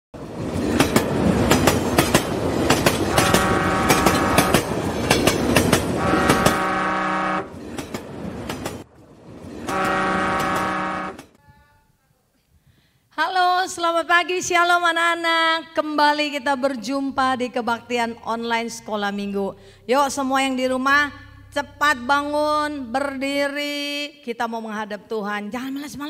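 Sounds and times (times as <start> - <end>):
train wheels clattering: 0.4 - 6.8, 7.5 - 11.4
train horn blasts: 3.1 - 4.7, 6.0 - 7.6, 9.6 - 11.4.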